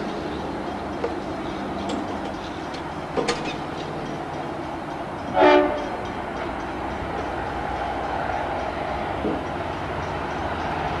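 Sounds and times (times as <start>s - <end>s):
train running noise: 0.0s - 11.0s
locomotive horn blast: 5.3s - 6.0s.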